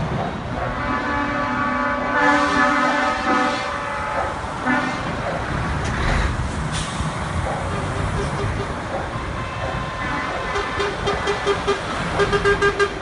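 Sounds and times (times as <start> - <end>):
truck air horn blasts: 0.8 - 5.1, 9.3 - 13.0
truck engines running: 2.9 - 13.0.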